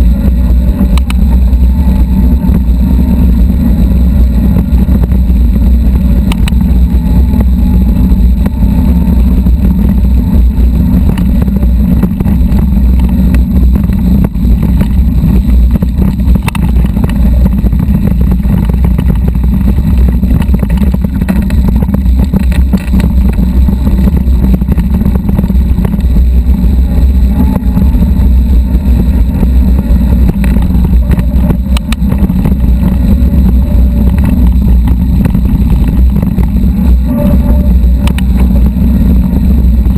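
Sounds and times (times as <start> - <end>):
wind buffeting microphone: 0.0 - 39.9
bike rattling clicks: 19.8 - 23.4.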